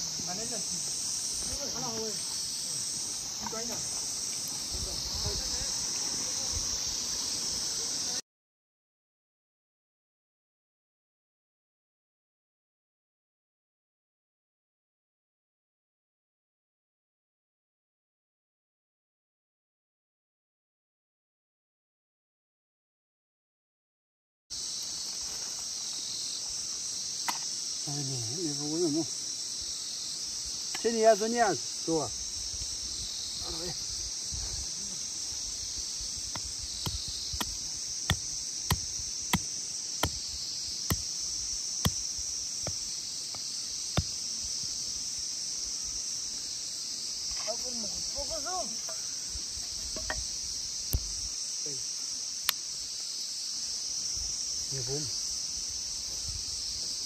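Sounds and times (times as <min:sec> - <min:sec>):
high-pitched insect chorus: 0:00.0 - 0:08.2, 0:24.5 - 0:57.0.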